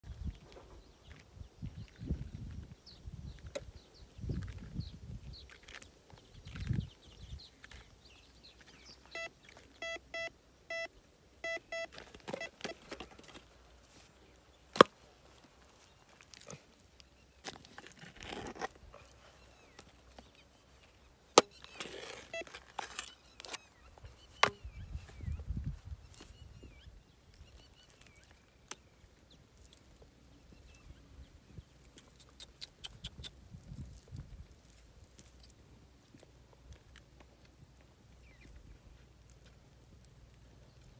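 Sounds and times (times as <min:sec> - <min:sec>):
metal detector beeps: 0:09.1 - 0:13.0, 0:21.5 - 0:23.7
dry clay scraping and crumbling: 0:11.9 - 0:25.3, 0:31.6 - 0:40.9.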